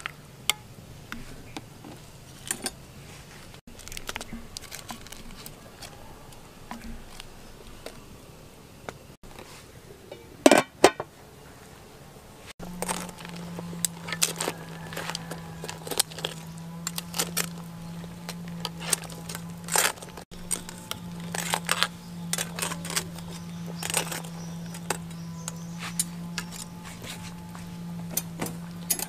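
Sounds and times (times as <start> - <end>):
steady low hum: 0.0 - 29.0
kitchen utensils clicking and knocking: 18.2 - 26.8.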